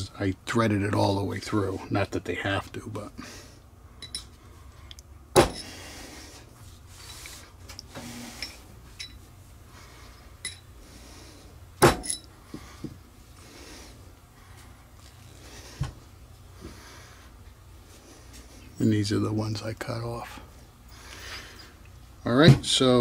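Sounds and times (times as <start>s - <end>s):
low steady hum: 0.0s - 23.0s
sharp knocks on workbench: 11.8s - 12.1s.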